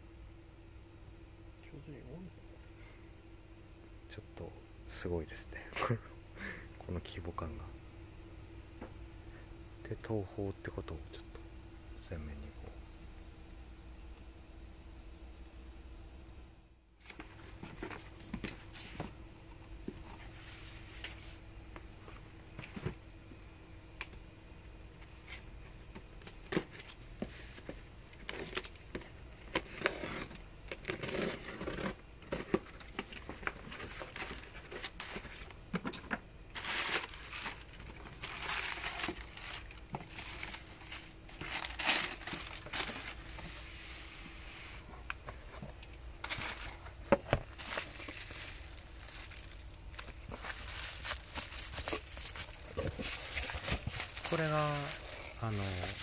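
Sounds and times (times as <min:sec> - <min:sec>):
cardboard and paper rustling: 0:17.0 - 0:19.2, 0:19.8 - 0:23.0, 0:25.0 - 0:56.0
packing tape tearing: 0:28.2 - 0:43.3, 0:46.2 - 0:56.0.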